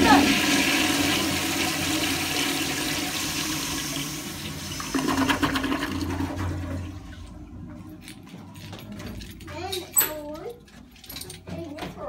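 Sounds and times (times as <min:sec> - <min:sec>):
toilet flushing: 0:00.0 - 0:07.8.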